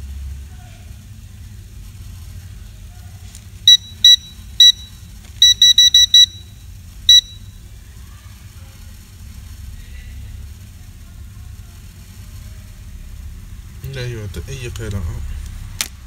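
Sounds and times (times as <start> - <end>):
multimeter short high beeps: 3.7 - 7.6.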